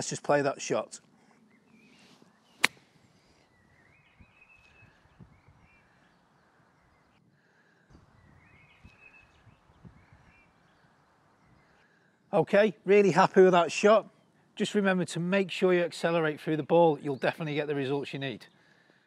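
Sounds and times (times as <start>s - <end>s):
club swishing through grass: 2.0s - 2.9s
golf club striking ball: 2.6s - 2.8s.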